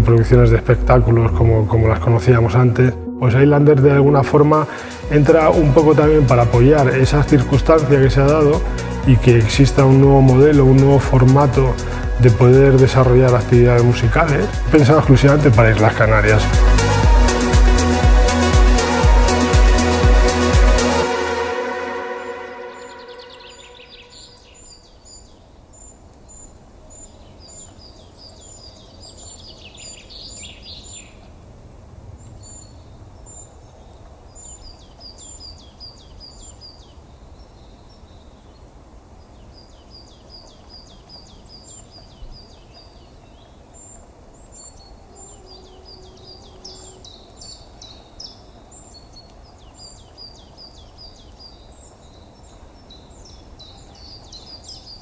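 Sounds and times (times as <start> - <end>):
steady low rumble: 0.0 - 20.4
small birds chirping: 0.0 - 21.0, 22.1 - 31.4, 32.1 - 55.0.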